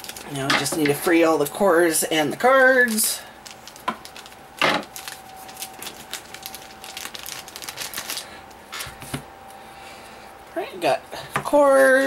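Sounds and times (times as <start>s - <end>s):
plastic packaging crackling: 0.0s - 9.2s.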